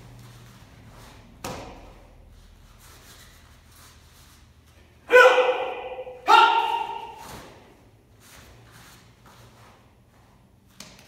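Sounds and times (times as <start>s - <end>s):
martial arts shout: 5.0s - 7.7s.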